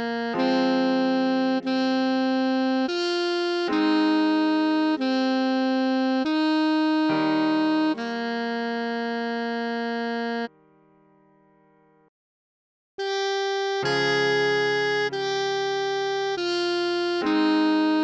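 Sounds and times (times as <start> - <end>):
alto saxophone melody: 0.0 - 10.6, 13.0 - 18.0
sustained keyboard chords: 0.0 - 10.8, 13.0 - 18.0.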